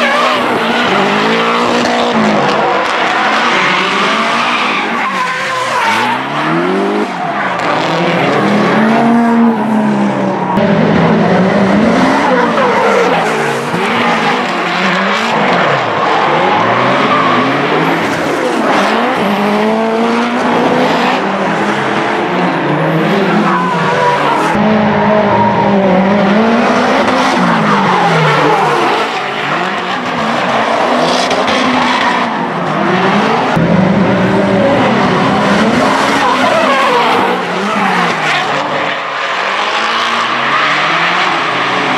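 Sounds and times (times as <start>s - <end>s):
car engines revving: 0.0s - 41.9s
tyre squeal and skidding: 2.6s - 8.1s, 35.8s - 41.9s.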